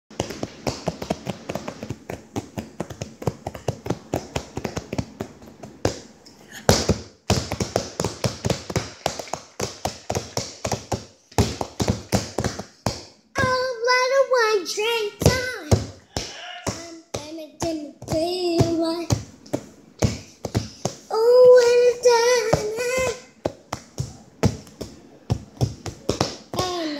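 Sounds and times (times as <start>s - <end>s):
rapid tapping on hard surface: 0.1s - 6.0s, 6.6s - 13.5s.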